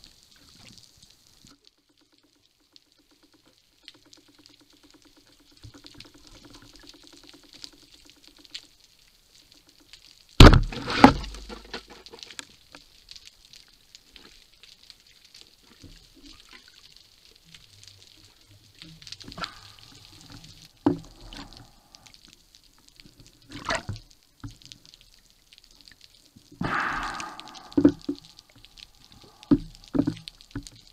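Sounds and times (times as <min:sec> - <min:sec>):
speargun firing crack: 0:26.6 - 0:28.2
loud hit: 0:26.6 - 0:29.6
low rumble: 0:26.6 - 0:29.9.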